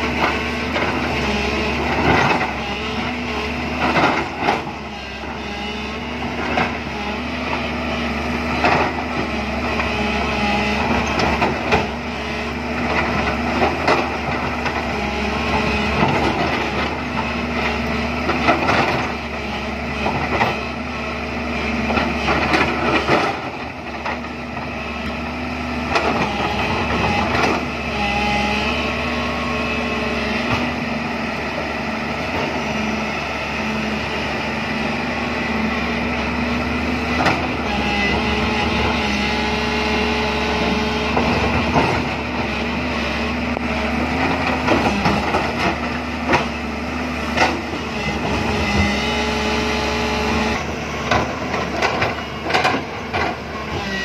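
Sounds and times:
excavator diesel engine running: 0:00.0 - 0:54.0.

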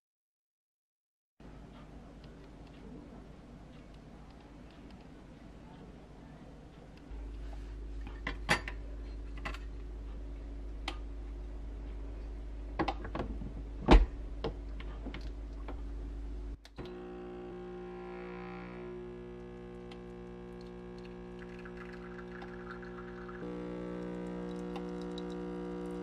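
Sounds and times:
espresso pump buzzing hum: 0:16.8 - 0:26.0.

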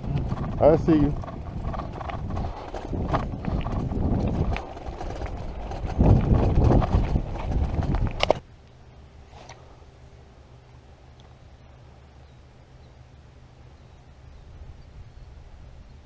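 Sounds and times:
bicycle tyres on gravel: 0:00.0 - 0:08.4
faint low hum: 0:00.0 - 0:16.0
clicks and rattles: 0:00.1 - 0:08.4.

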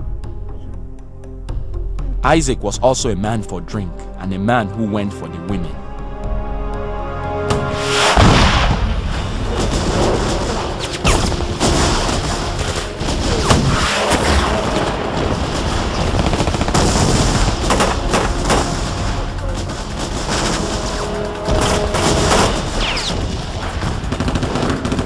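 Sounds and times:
explosions booming: 0:08.1 - 0:25.0
rapid rifle gunfire: 0:09.7 - 0:25.0.

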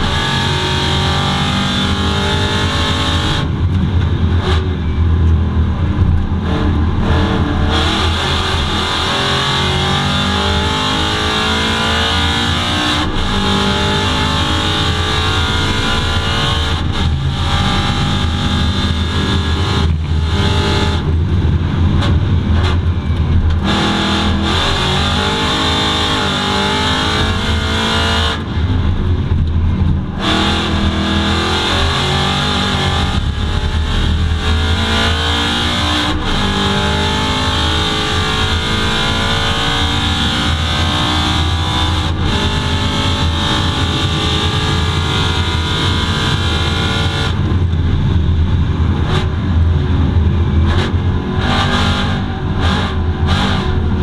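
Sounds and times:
race car engine revving: 0:00.0 - 0:54.0.

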